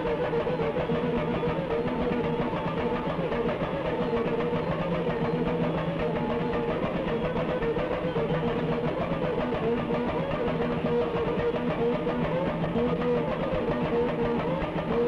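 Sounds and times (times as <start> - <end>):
samba drums and shakers: 0.0 - 15.0.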